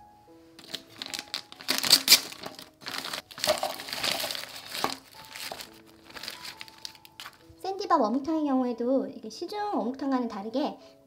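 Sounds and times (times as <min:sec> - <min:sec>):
fish cakes tumbling into bowl: 0:00.6 - 0:07.4
plastic pouch crinkling: 0:00.6 - 0:07.6.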